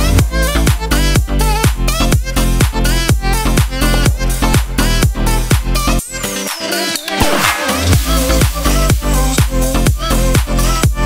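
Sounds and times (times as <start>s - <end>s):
electronic dance music: 0.0s - 11.0s
high falling sweep: 7.1s - 9.8s.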